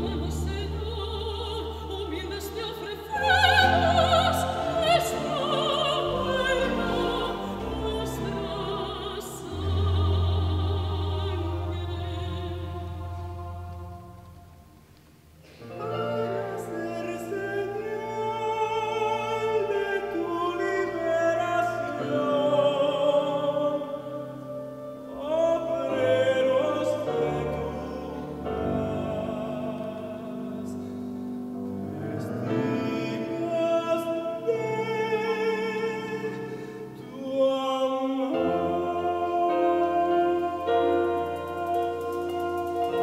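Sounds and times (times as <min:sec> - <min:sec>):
man singing: 0:15.8 - 0:30.9, 0:32.2 - 0:43.0.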